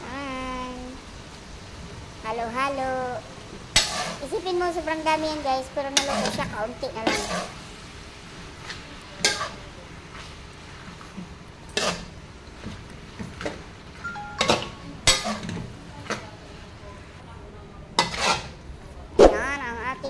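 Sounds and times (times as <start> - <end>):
metal spatula scraping a wok: 3.8 - 4.3, 5.9 - 7.7, 8.6 - 13.6, 14.4 - 15.6, 18.0 - 18.6.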